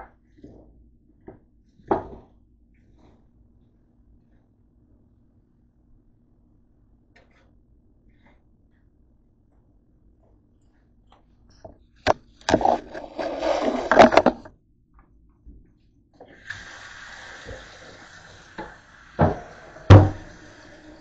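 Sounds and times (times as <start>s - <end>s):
faucet running into steel sink: 16.2s - 21.0s.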